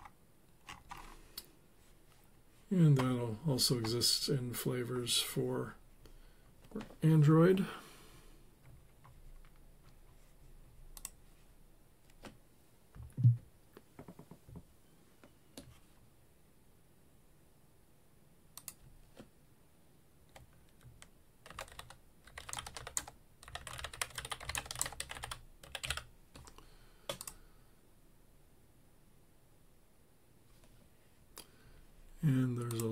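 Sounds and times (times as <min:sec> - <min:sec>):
computer keyboard typing: 0:00.0 - 0:01.2, 0:20.3 - 0:27.4.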